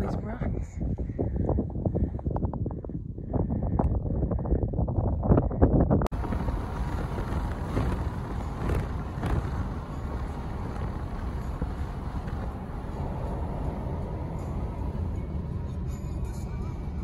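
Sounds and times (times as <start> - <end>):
wind buffeting microphone: 0.0 - 17.0
car road and engine noise: 6.1 - 17.0.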